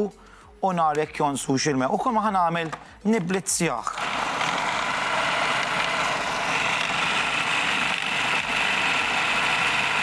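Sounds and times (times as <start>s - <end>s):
food processor running: 3.9s - 10.0s.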